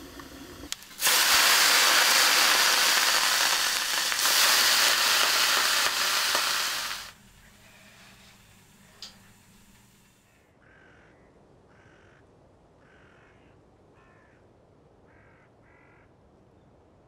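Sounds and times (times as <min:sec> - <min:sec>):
soft hiss: 0:00.0 - 0:10.4
crow cawing: 0:10.6 - 0:12.2, 0:12.8 - 0:14.4, 0:15.1 - 0:16.1.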